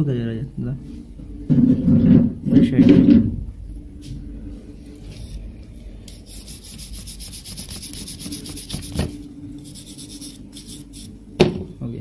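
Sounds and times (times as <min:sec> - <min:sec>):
bristle brush scrubbing: 0:06.1 - 0:11.1.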